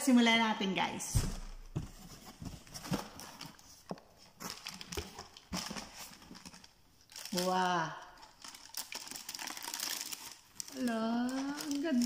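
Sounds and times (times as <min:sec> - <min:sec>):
cardboard box being handled: 0:01.2 - 0:06.5.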